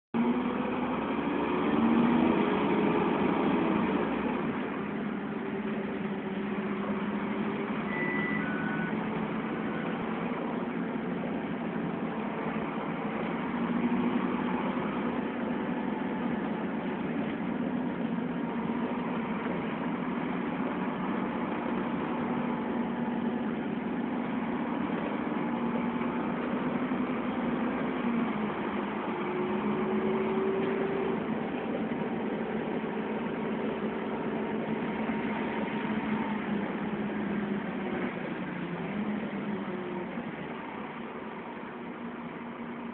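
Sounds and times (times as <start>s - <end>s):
bus engine drone with whine: 0.2s - 42.9s
short beeps: 7.8s - 9.1s.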